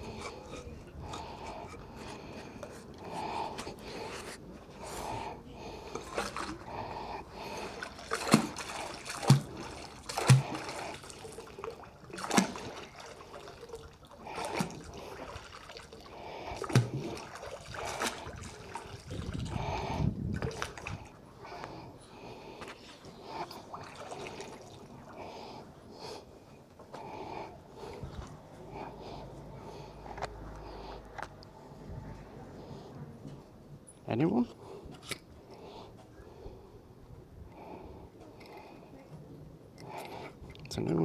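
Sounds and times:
water splashing and trickling: 5.6s - 21.2s, 22.8s - 25.4s.

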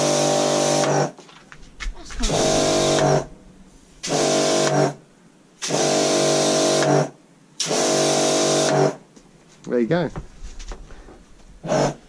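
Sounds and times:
pressure washer motor humming: 2.2s - 5.0s.

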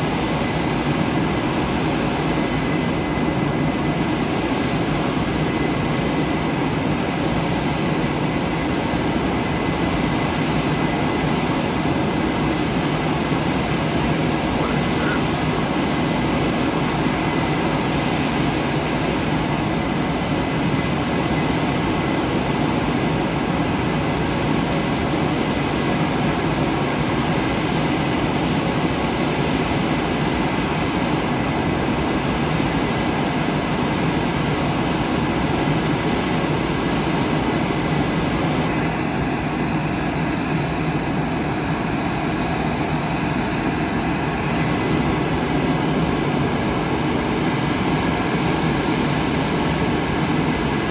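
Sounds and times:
high jet whine: 0.0s - 50.9s
jet engines roaring: 0.0s - 50.9s.

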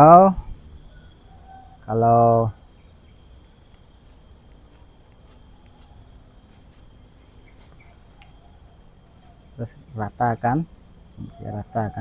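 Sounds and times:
insect chorus: 0.0s - 12.0s
faint light ticks: 3.6s - 6.2s, 7.6s - 8.4s.

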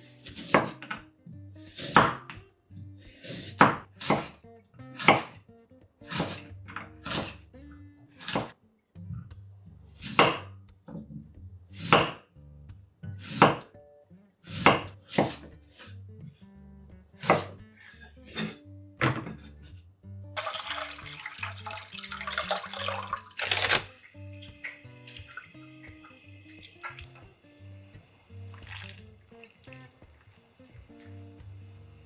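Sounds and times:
knife chopping on wooden board: 0.4s - 1.0s, 1.8s - 2.4s, 3.3s - 4.4s, 5.0s - 5.4s, 6.1s - 7.4s, 8.2s - 8.5s, 10.0s - 11.0s, 11.8s - 12.2s, 13.3s - 13.7s, 14.5s - 15.5s, 17.2s - 17.6s.

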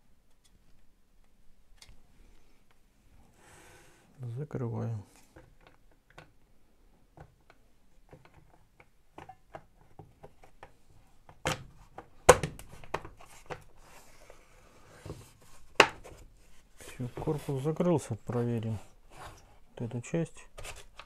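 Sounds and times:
plastic knocks and snaps: 7.1s - 13.7s, 15.7s - 16.2s.

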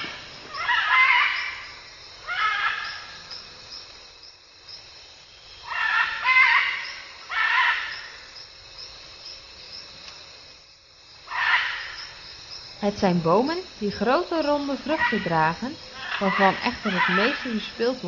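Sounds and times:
macaws squawking: 5.6s - 8.0s, 14.8s - 17.7s.

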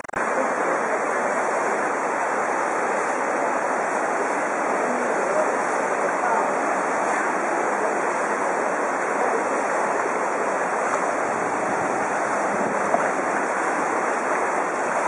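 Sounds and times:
floodwater rushing: 0.0s - 15.0s
wind buffeting microphone: 11.0s - 15.0s.

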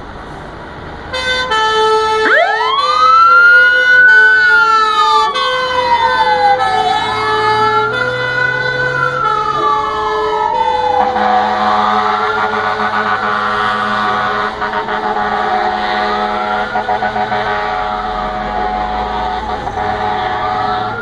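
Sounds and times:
fire engine siren wailing: 1.1s - 21.0s
horn blasts: 11.0s - 21.0s.

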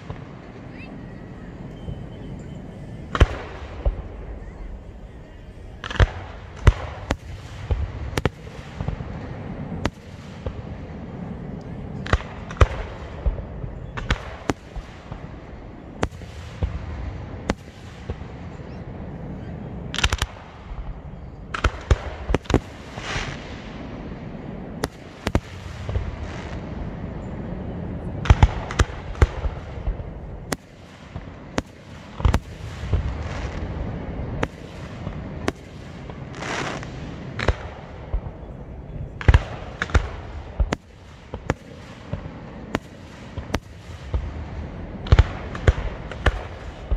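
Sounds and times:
low rumble: 0.0s - 9.8s
fireworks bursting with sharp bangs: 0.0s - 46.9s.

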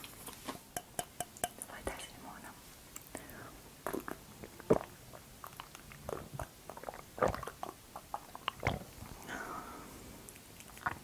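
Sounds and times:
person gulping a drink: 3.8s - 9.3s, 10.3s - 11.0s.

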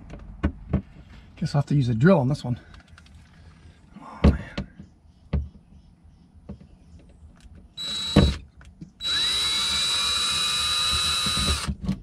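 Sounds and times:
cordless drill high whine: 7.8s - 8.4s, 9.0s - 11.7s.

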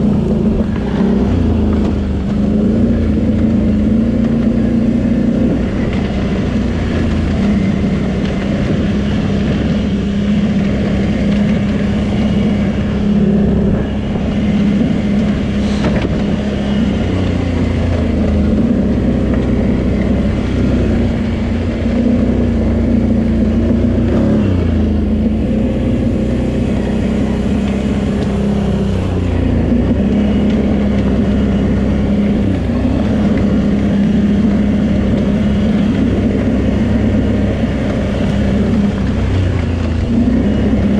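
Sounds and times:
quad bike engine running: 0.0s - 40.9s.

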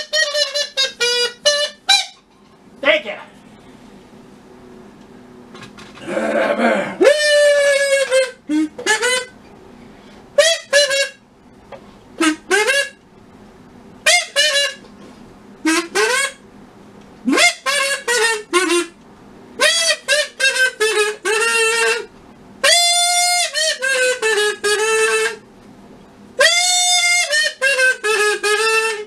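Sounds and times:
reedy wind instrument honking: 0.0s - 2.2s, 7.0s - 9.4s, 10.4s - 11.2s, 12.2s - 13.0s, 14.0s - 14.9s, 15.6s - 16.4s, 17.3s - 19.0s, 19.6s - 25.4s, 26.4s - 29.0s.

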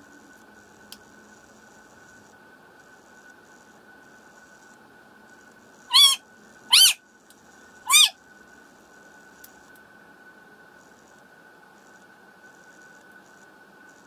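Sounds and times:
animal calls: 5.9s - 7.0s, 7.9s - 8.2s.

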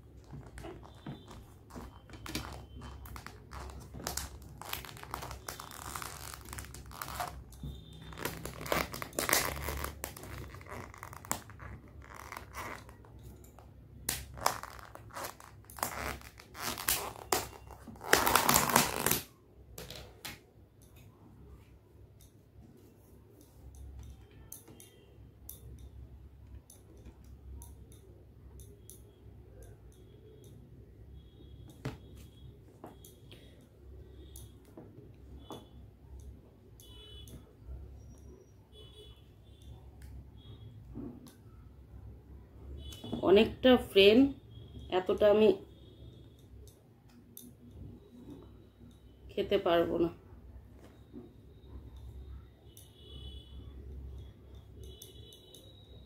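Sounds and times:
plastic lid crinkling and crackling: 0.2s - 7.5s, 8.1s - 13.2s.

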